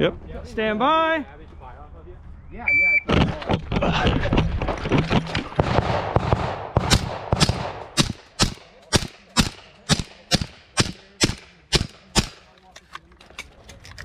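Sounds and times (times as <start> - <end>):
suppressed pistol shots: 5.6 - 12.5.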